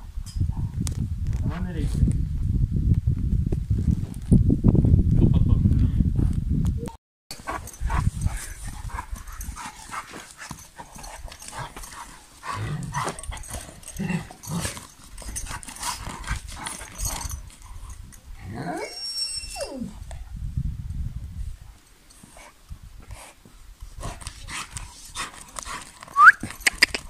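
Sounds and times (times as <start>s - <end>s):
dog sniffing and digging in dirt: 7.3s - 18.3s, 22.1s - 27.0s
dog whining: 18.6s - 20.0s.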